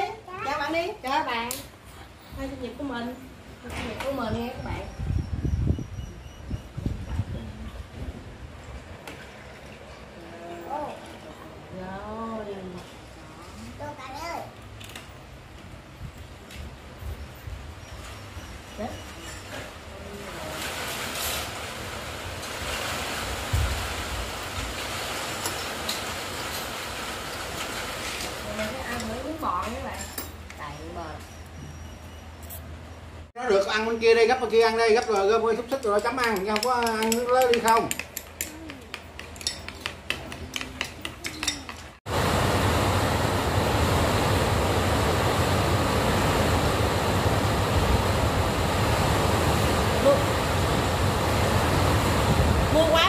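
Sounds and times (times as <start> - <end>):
wind buffeting microphone: 4.2 - 9.0, 42.1 - 53.0
utensils clinking on dishes: 17.9 - 19.8, 34.9 - 42.0.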